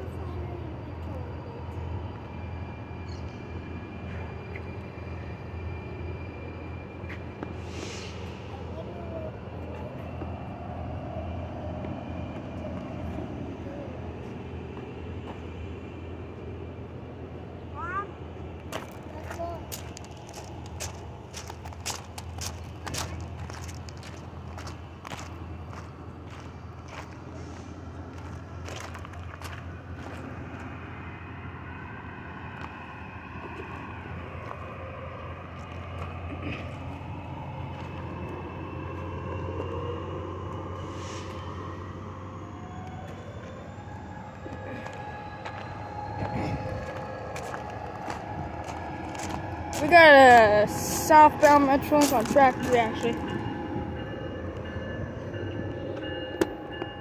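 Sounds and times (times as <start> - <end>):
diesel locomotive engine rumble: 0.0 - 57.0
train wheels rolling: 18.4 - 57.0.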